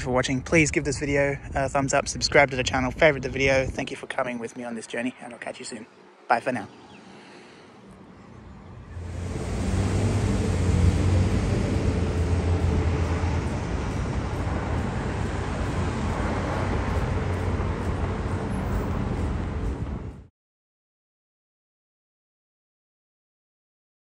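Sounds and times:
outdoor roar with low hum: 5.8s - 20.3s.

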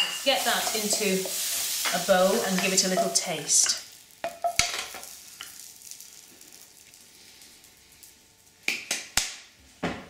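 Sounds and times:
spoon knocking frying pan: 0.0s - 5.1s
soft sizzle of hot pan: 0.0s - 9.2s.

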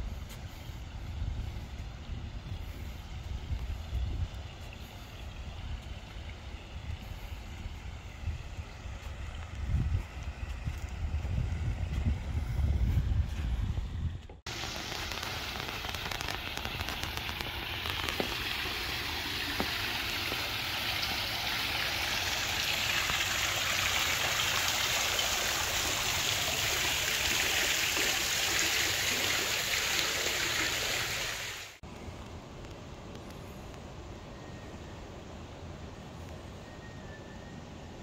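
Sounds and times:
splashing falling water: 14.5s - 31.8s.

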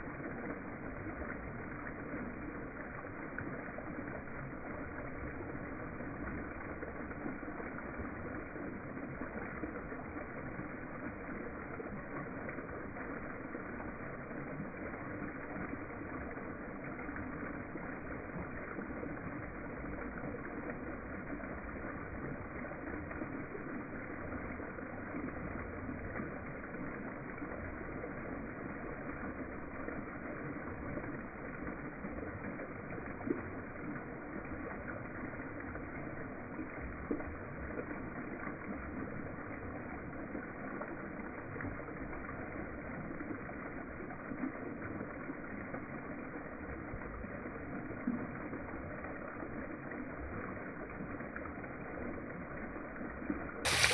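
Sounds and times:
waterfall rushing: 53.7s - 53.9s.

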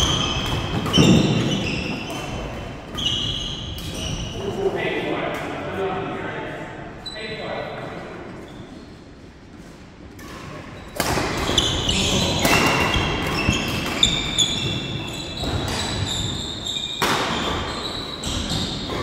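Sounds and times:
shoes squeaking on wooden floor: 0.0s - 4.6s, 10.3s - 19.0s
rackets hitting shuttlecock: 10.1s - 16.1s, 16.9s - 17.6s.

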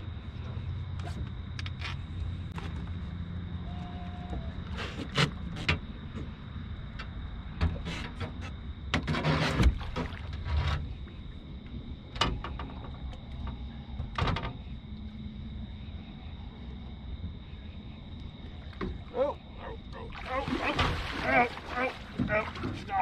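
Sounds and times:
low hum: 9.8s - 22.9s.

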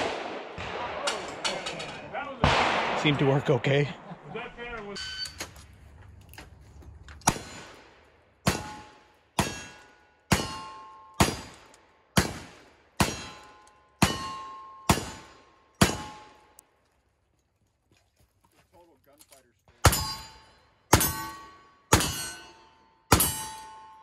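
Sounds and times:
steel target clanging: 0.8s - 3.6s, 8.4s - 11.2s, 13.0s - 15.2s.

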